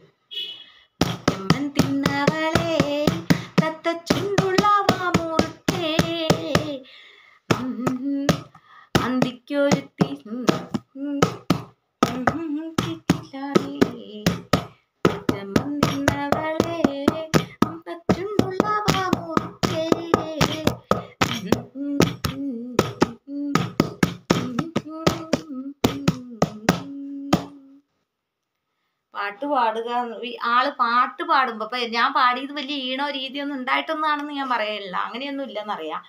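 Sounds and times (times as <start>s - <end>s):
hand taps: 1.0s - 6.8s, 7.5s - 27.6s
woman singing unaccompanied: 1.0s - 6.9s, 7.5s - 27.8s.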